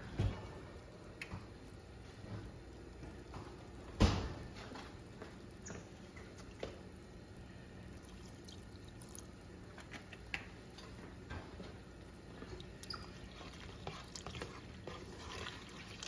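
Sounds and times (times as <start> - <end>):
milk pouring: 7.9 - 9.4, 12.4 - 16.0.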